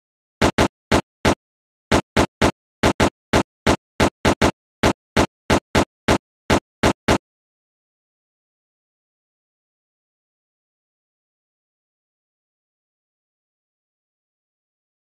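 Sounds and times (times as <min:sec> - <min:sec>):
short sharp text bursts: 0:00.4 - 0:07.2.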